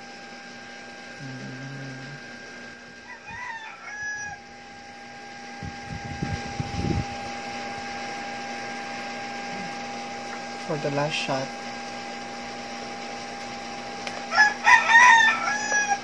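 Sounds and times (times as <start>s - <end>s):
steady electrical hum: 0.0s - 16.0s
rooster crowing: 3.0s - 4.6s, 14.3s - 16.0s.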